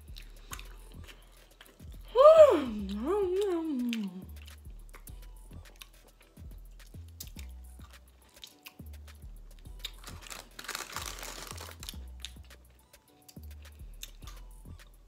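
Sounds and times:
background music with deep bass: 0.0 - 15.0
paper crinkling: 10.0 - 12.0.

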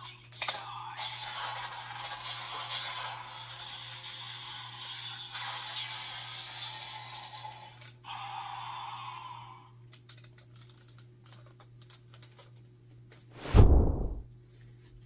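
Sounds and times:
plastic toy clicks: 9.9 - 12.5.

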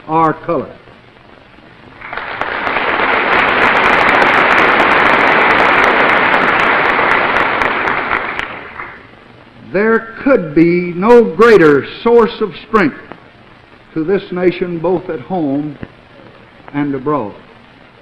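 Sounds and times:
audience applauding: 1.9 - 9.1.

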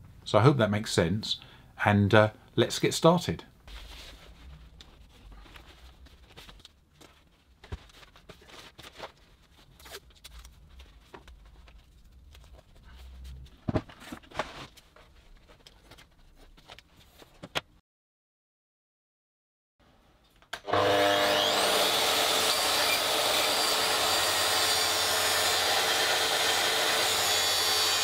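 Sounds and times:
plastic bag rustling and crinkling: 3.6 - 17.3.

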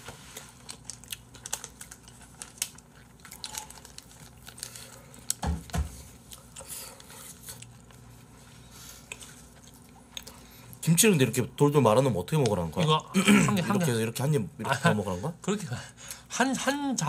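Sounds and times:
chewing: 0.0 - 5.4, 6.0 - 10.8.

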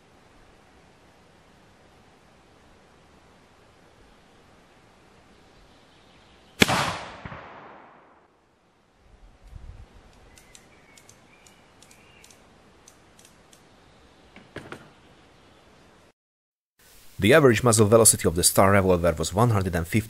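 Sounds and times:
revolver gunshot with echo: 6.6 - 8.3
light clicks: 9.4 - 13.7.

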